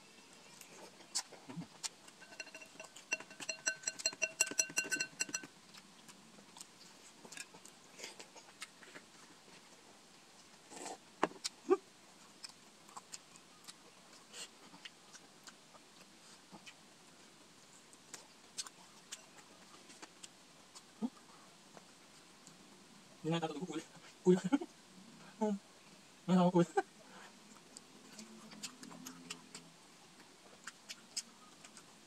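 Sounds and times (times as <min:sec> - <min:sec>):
faint eating clicks and smacks: 0:00.5 - 0:22.7, 0:27.2 - 0:32.0.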